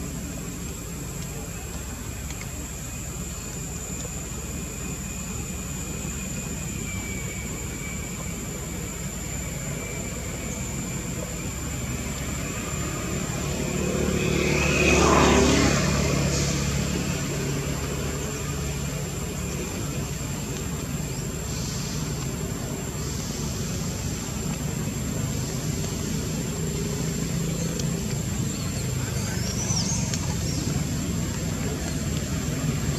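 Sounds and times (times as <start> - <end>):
constant high-pitched tone: 0.0 - 13.7
steady background noise: 0.0 - 32.9
motor vehicle passing by: 11.7 - 20.4.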